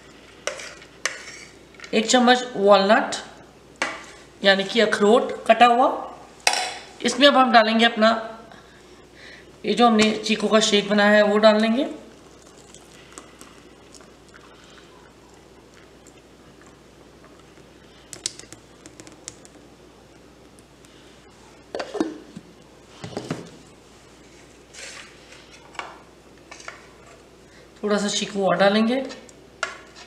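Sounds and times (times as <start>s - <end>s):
milkshake pouring into glass: 12.1s - 19.6s.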